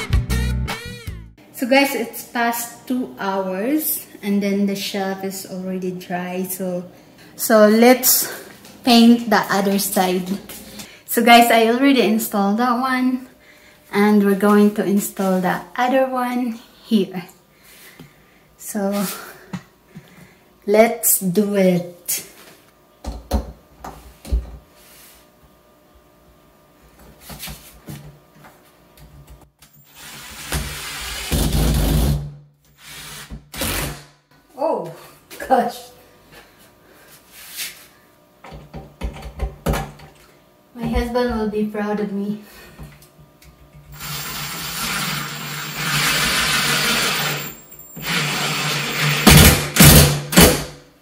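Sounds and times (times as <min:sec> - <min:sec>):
cordless drill motor: 0:29.8 - 0:31.4, 0:43.9 - 0:49.5.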